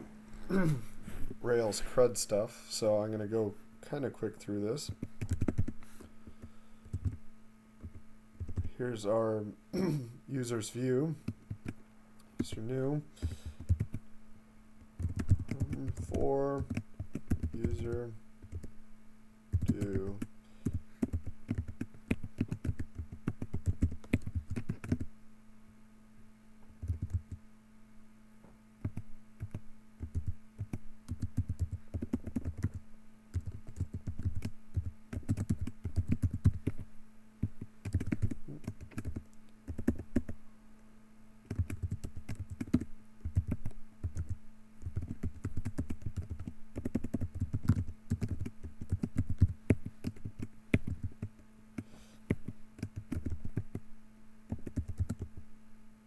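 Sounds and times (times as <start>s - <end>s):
typing on keyboard: 4.9s - 5.8s, 6.9s - 7.2s, 7.8s - 8.7s, 13.6s - 14.0s, 15.0s - 18.7s, 19.5s - 25.1s, 26.8s - 27.4s, 28.8s - 36.8s, 37.4s - 40.4s, 41.5s - 51.4s, 52.3s - 53.8s, 54.5s - 55.4s.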